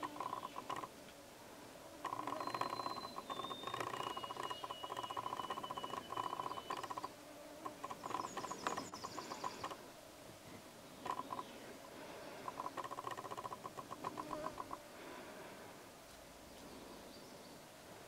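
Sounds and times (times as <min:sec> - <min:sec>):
birds singing: 0:00.0 - 0:00.9, 0:02.0 - 0:09.8, 0:10.8 - 0:14.8, 0:16.5 - 0:17.7.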